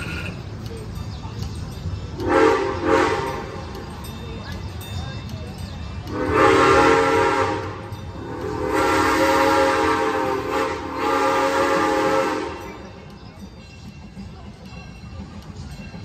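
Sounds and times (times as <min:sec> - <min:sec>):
steam whistle blasts: 0:02.2 - 0:03.6, 0:06.1 - 0:12.8.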